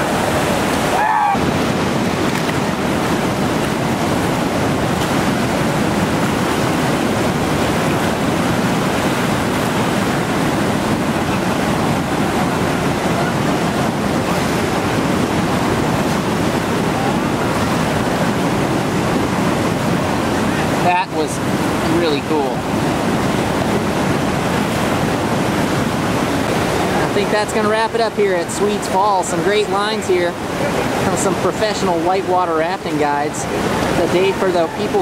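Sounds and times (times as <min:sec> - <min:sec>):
whitewater rapid rushing: 0:00.0 - 0:35.0.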